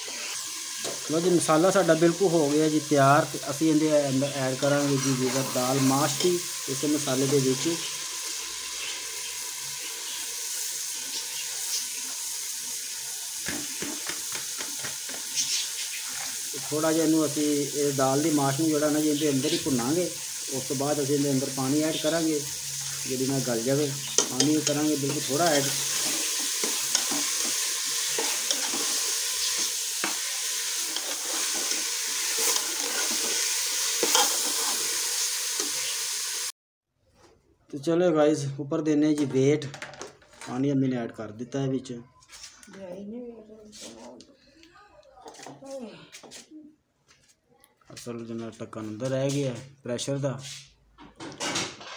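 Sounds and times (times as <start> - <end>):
food sizzling in hot oil: 0.0 - 36.6
metal ladle scraping pot: 24.0 - 34.9.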